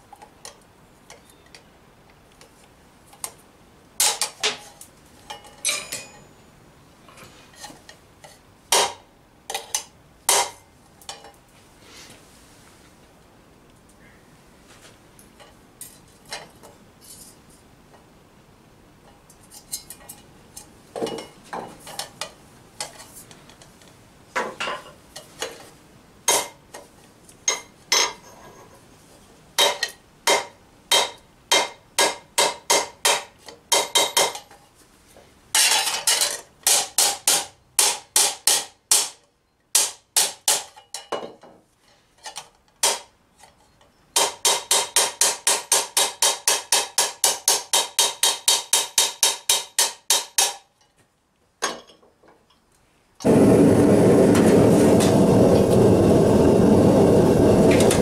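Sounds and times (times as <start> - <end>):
hammer tapping steel tube: 29.6 - 34.4, 36.7 - 39.2, 44.2 - 50.6.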